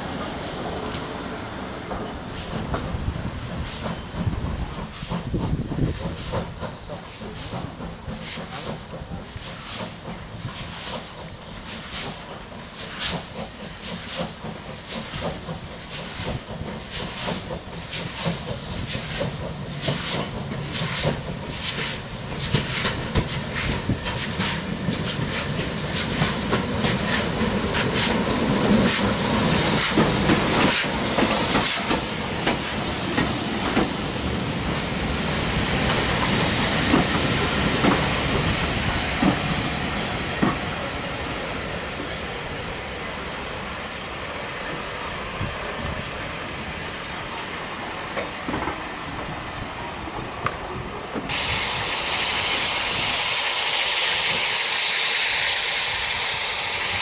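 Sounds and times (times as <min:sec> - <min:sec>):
steam hissing: 0:00.0 - 0:57.0
train coaches rolling on rails: 0:00.0 - 0:57.0
steam locomotive exhaust beats: 0:01.8 - 0:57.0.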